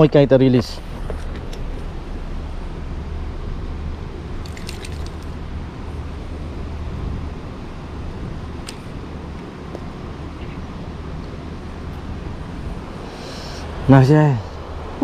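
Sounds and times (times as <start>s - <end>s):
river water rushing: 4.4s - 5.5s.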